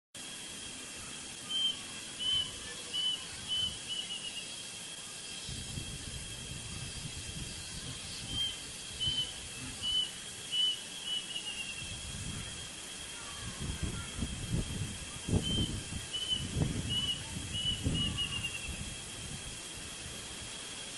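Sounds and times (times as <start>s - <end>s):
cuckoo singing: 1.4s - 4.5s, 8.2s - 11.8s, 15.4s - 18.8s.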